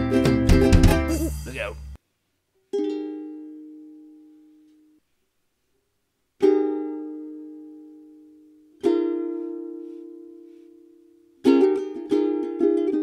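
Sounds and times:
ukulele chords strummed: 0:00.0 - 0:02.0, 0:02.7 - 0:05.0, 0:06.4 - 0:13.0.

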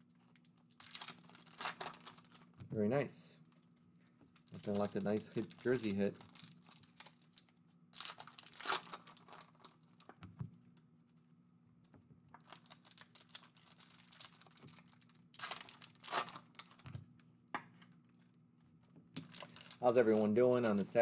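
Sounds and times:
foil wrapper crinkling and tearing: 0:00.1 - 0:02.6, 0:04.3 - 0:10.1, 0:12.4 - 0:17.0, 0:19.2 - 0:21.0.

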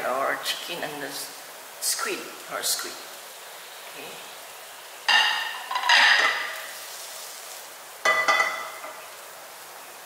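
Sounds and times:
metal cookware clanking: 0:05.1 - 0:06.6, 0:08.0 - 0:09.0.

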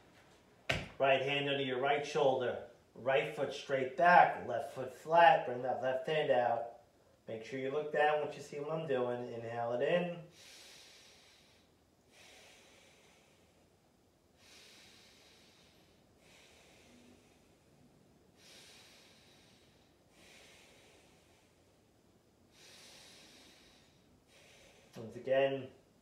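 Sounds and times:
person breathing deeply: 0:10.3 - 0:13.7, 0:14.4 - 0:21.9, 0:22.5 - 0:25.0.

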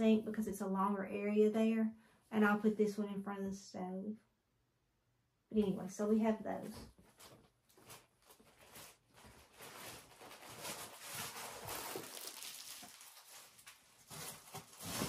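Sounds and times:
fabric rustling: 0:06.9 - 0:15.0.

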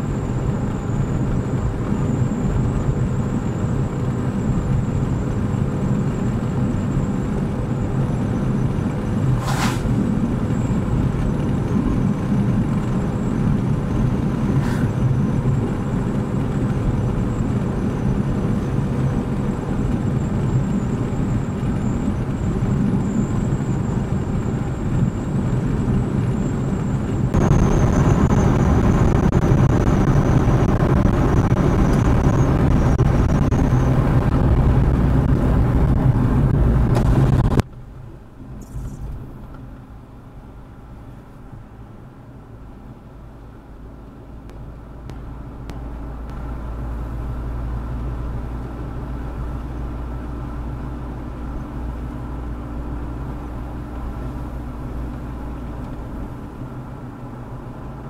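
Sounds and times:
car engine and road noise: 0:00.0 - 0:58.0.

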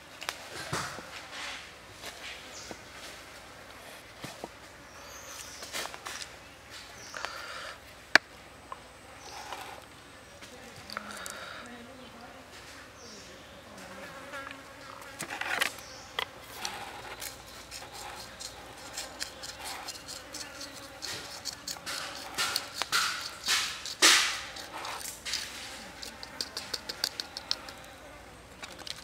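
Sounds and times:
chopstick scraping and tapping leaf: 0:15.2 - 0:27.9.

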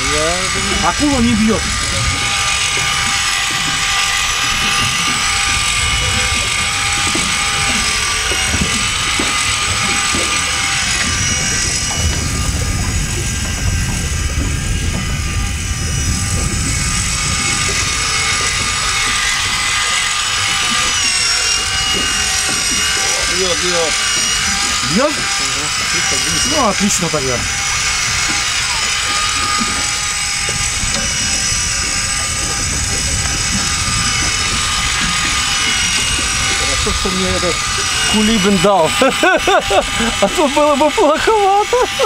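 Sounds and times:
cordless drill whirring: 0:00.0 - 0:42.0.

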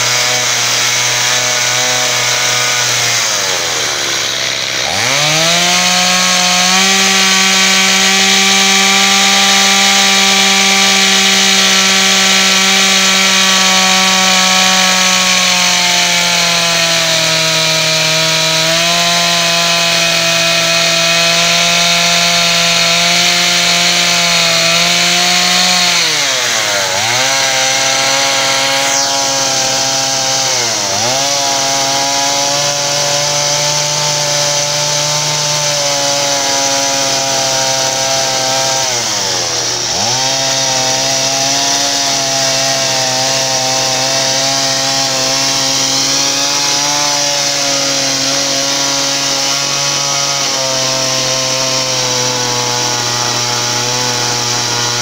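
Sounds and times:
chainsaw running at high revs: 0:00.0 - 0:55.0.

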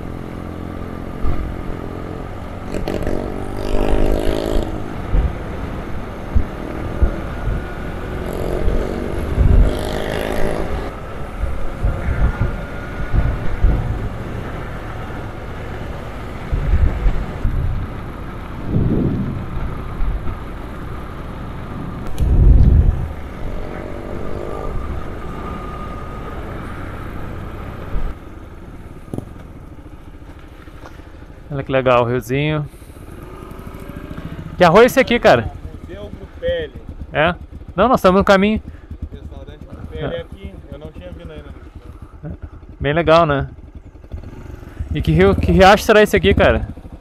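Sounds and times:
motorcycle engine running: 0:00.0 - 0:47.0
short low rumbles: 0:11.3 - 0:21.0, 0:21.7 - 0:25.3.

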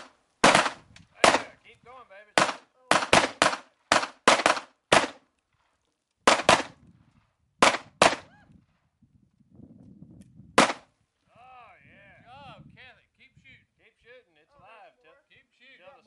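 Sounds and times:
handgun shots: 0:02.4 - 0:05.2, 0:06.3 - 0:06.7, 0:07.6 - 0:08.3, 0:10.6 - 0:10.8.

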